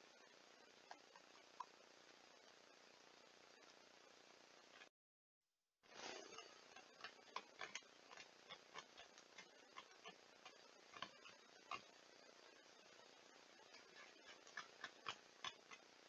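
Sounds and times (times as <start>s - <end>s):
steady hiss: 0.0s - 4.9s, 5.8s - 16.0s
beaver gnawing wood: 6.4s - 15.9s.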